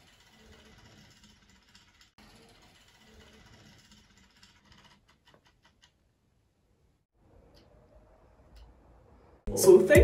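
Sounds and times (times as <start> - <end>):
clock movement whirring: 0.0 - 6.1.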